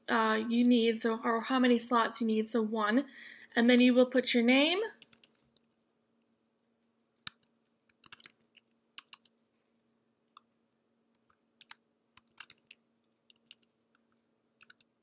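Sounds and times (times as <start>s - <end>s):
faint steady hum: 0.0s - 15.0s
keyboard keystroke clicks: 7.2s - 9.3s, 11.2s - 14.9s.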